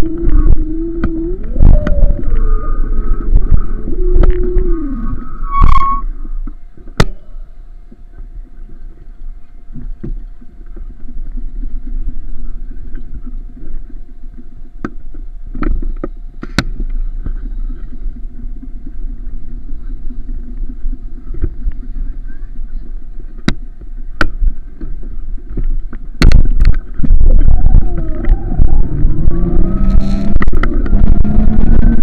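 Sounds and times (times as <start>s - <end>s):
vehicle engine rumble: 0.0s - 32.0s.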